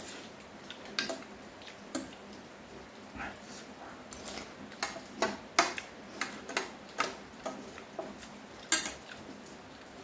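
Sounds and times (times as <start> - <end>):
cutlery clicking on ceramic plate: 8.7 - 9.0.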